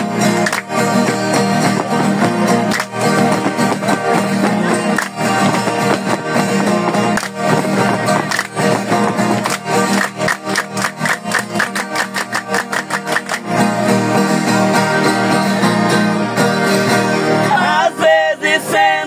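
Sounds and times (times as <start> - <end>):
hands clapping in fast rhythm: 0.0 - 16.0
strummed guitar: 0.0 - 19.0
man singing: 17.3 - 19.0.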